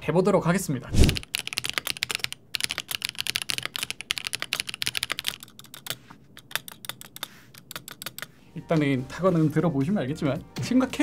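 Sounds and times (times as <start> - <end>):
mechanical keyboard typing: 1.0 - 8.3.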